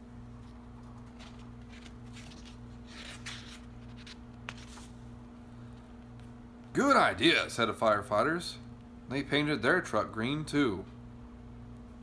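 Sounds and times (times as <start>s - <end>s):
steady low hum: 0.0s - 12.0s
soft rustling and handling: 0.2s - 6.4s.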